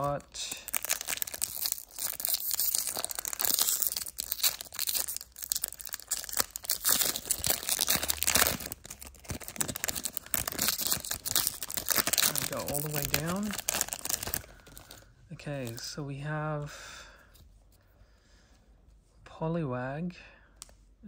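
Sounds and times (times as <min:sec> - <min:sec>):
foil wrapper tearing and crinkling: 0:00.0 - 0:15.0.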